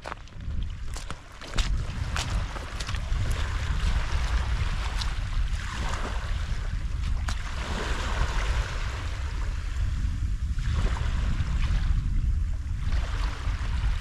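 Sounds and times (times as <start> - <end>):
wind rumbling on microphone: 0.0 - 14.0
water splashing: 0.9 - 8.7.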